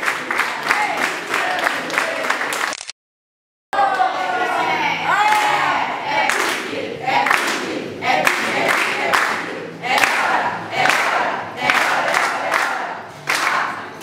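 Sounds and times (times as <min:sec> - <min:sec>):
group singing birthday song: 0:00.0 - 0:02.6, 0:03.8 - 0:14.0
people clapping in time: 0:00.0 - 0:02.8, 0:06.2 - 0:14.0.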